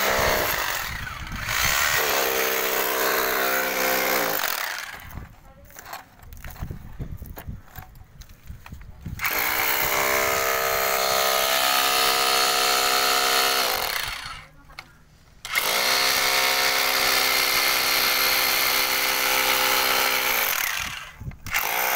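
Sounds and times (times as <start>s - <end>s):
hammer drill boring into brick: 0.0s - 5.3s, 9.2s - 14.5s, 15.4s - 21.9s.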